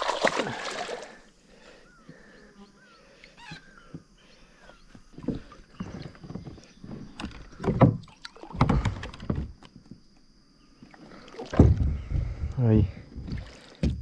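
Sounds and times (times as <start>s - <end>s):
water splashing around kayak: 0.0s - 1.3s, 10.8s - 12.5s, 13.2s - 14.0s.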